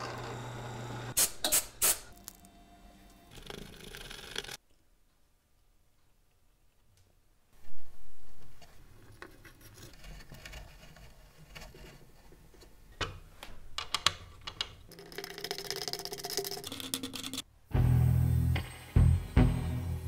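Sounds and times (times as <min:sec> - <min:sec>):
threads scraping and creaking in wood: 0:08.2 - 0:13.0.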